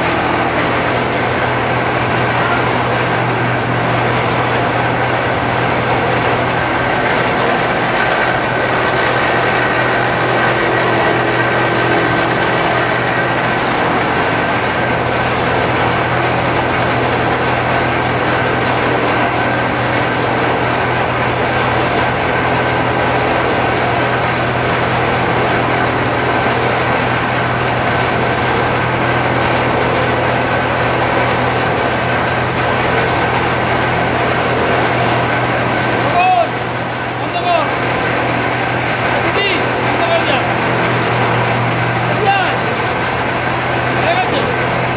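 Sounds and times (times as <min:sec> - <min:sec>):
machine drone with whine: 0:00.0 - 0:44.9.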